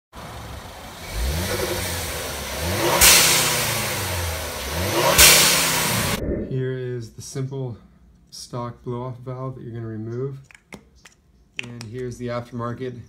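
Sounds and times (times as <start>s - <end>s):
car engine revving: 0.2s - 6.5s
turbo blow-off whoosh: 2.9s - 6.7s.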